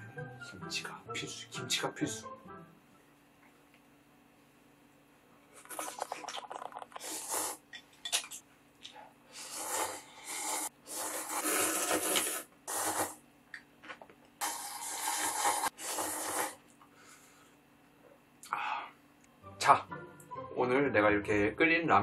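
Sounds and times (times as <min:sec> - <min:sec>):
person slurping noodles: 0:05.6 - 0:07.7, 0:09.3 - 0:13.2, 0:14.4 - 0:16.6.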